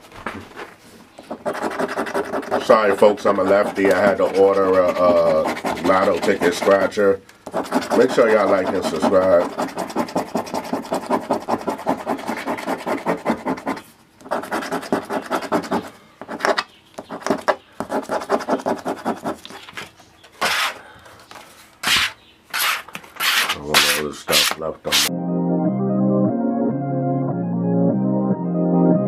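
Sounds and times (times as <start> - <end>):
scratching lottery ticket coating: 1.2 - 19.7.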